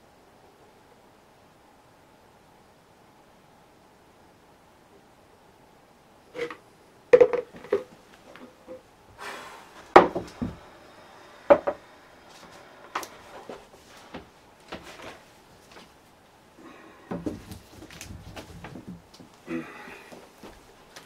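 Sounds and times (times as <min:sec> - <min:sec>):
objects knocking on a worktable: 0:07.2 - 0:07.9, 0:10.0 - 0:10.6, 0:11.5 - 0:11.8.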